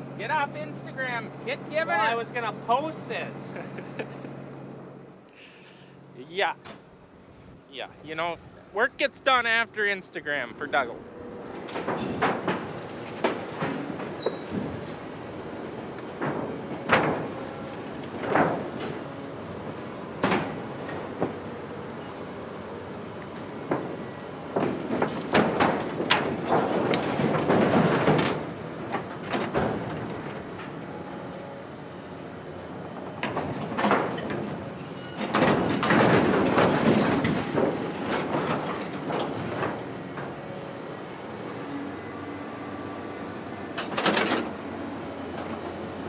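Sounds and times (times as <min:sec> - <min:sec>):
excavator engine running: 0:08.0 - 0:46.0
sheet metal crumpling and scraping: 0:23.7 - 0:30.8, 0:33.2 - 0:40.3.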